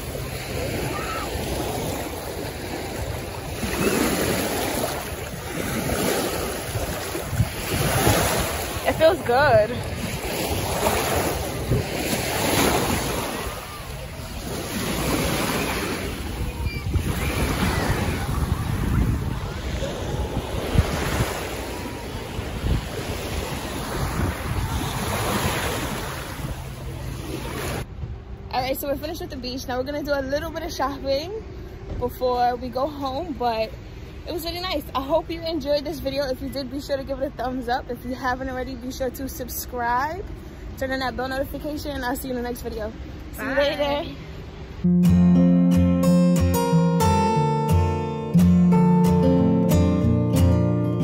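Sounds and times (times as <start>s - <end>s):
small waves washing over sand: 0.0s - 27.9s
wind rumble on microphone: 5.0s - 28.6s.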